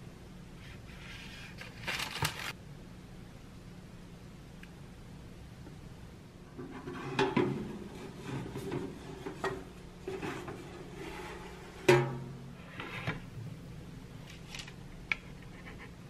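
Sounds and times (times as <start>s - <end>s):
metal tray scraping on oven rack: 6.6s - 13.2s
tray clunk: 6.6s - 13.2s.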